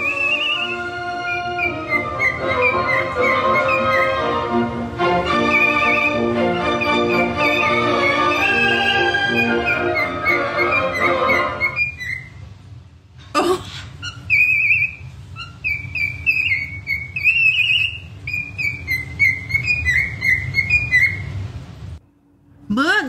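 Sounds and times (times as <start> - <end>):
bird whistling a warbling song: 0.0 - 4.6, 5.2 - 12.5, 13.8 - 21.4
string music: 0.0 - 11.8.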